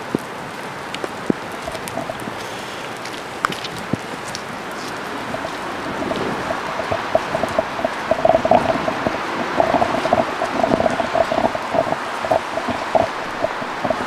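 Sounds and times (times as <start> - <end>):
steady rain: 0.0 - 14.0
water drops plopping: 5.0 - 14.0.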